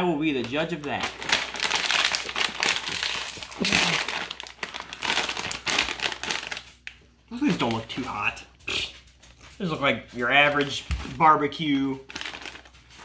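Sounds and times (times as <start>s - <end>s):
chip bag crinkling: 0.2s - 8.4s, 9.4s - 13.0s.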